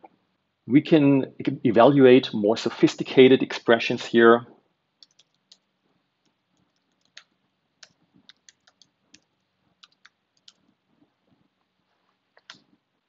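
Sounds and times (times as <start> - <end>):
computer keyboard keystrokes: 5.0 - 5.6, 6.6 - 10.6.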